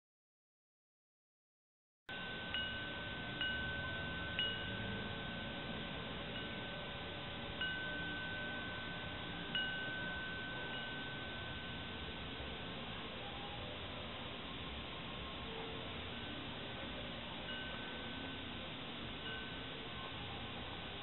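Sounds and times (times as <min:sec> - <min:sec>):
metal wind chime ringing: 0:02.1 - 0:21.0
steady hiss: 0:02.1 - 0:21.0.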